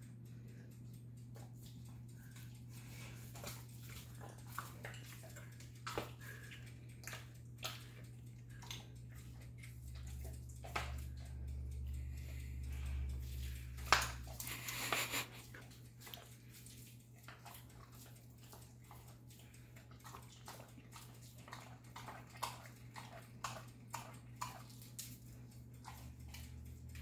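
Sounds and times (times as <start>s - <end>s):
steady low hum: 0.0s - 27.0s
wolf licking meat: 1.4s - 11.3s, 13.2s - 27.0s.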